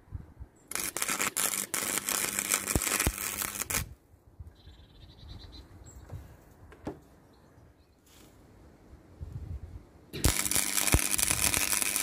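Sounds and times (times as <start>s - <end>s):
welding arc crackling and sizzling: 0.7s - 3.9s, 10.2s - 12.0s.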